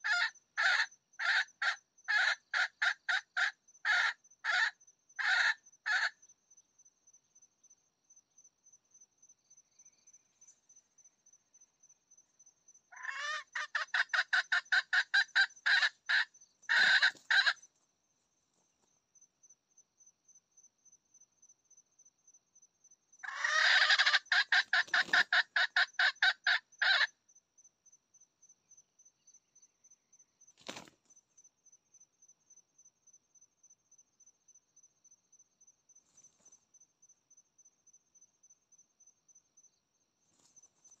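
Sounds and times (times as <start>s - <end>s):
junglefowl calling: 0.0s - 6.2s, 12.9s - 17.6s, 23.2s - 27.1s.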